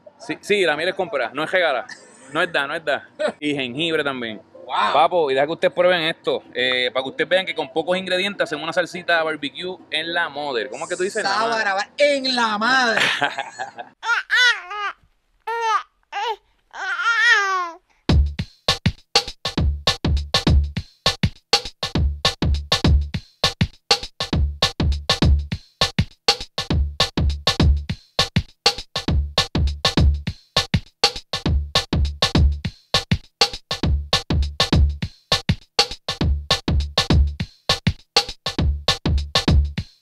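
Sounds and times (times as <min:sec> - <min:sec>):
high-pitched vocal sounds: 0:14.0 - 0:17.8
deep bass thumps: 0:18.1 - 0:18.4, 0:19.6 - 0:20.8, 0:22.0 - 0:23.1, 0:24.3 - 0:25.5, 0:26.7 - 0:27.9, 0:29.1 - 0:30.3, 0:31.5 - 0:32.6, 0:33.8 - 0:35.0, 0:36.2 - 0:37.4, 0:38.6 - 0:39.8
electronic music with drum beat: 0:18.1 - 0:40.0.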